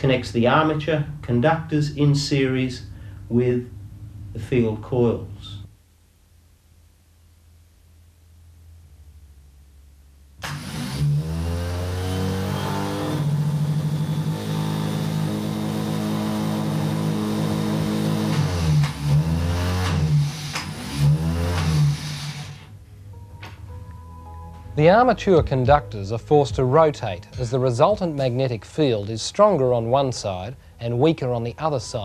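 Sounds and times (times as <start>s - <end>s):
starter motor whining: 10.4s - 22.8s.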